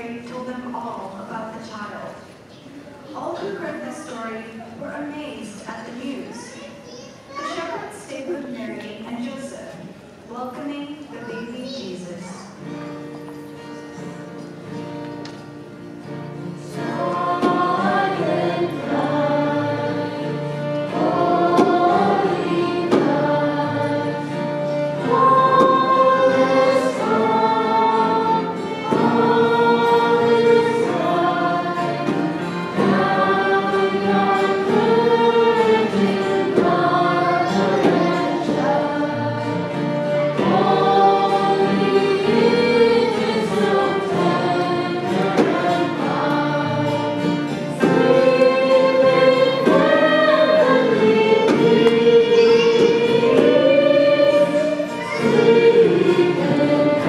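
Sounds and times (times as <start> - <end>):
choir singing a slow melody: 16.0 - 57.0.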